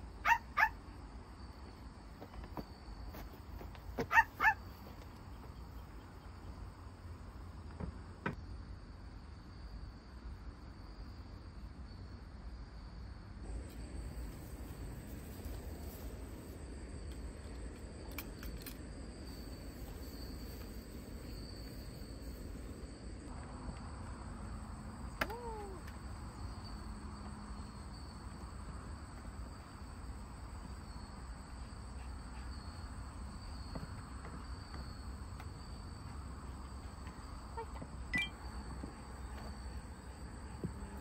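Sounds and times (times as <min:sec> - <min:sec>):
insects trilling: 0:00.0 - 0:07.8, 0:13.4 - 0:41.0
brief falling squeak: 0:38.1 - 0:38.4.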